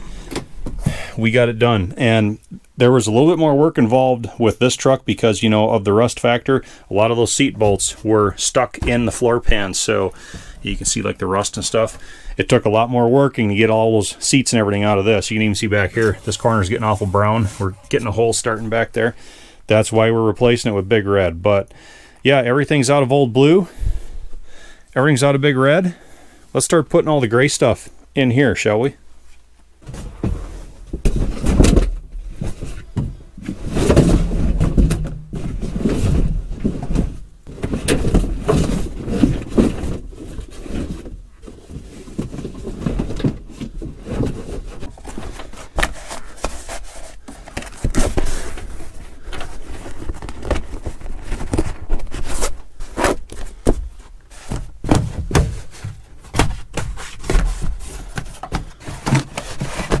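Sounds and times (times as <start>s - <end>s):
carpet rustling and scraping: 14.6s - 19.1s, 29.2s - 60.0s.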